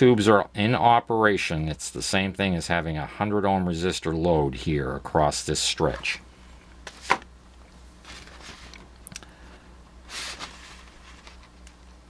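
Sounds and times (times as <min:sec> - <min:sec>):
faint low hum: 0:00.0 - 0:12.0
paper sheet rustling: 0:06.8 - 0:07.2, 0:08.0 - 0:08.8, 0:10.1 - 0:11.8.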